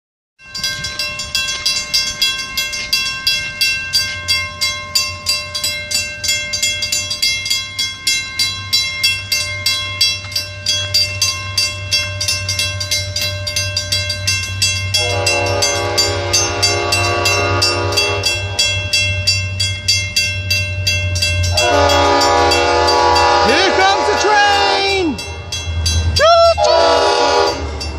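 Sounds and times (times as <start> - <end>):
railroad crossing bell ringing: 0.4 - 27.9
train rumble: 0.4 - 27.9
locomotive horn blast: 15.0 - 18.7, 21.5 - 25.2, 26.6 - 27.7.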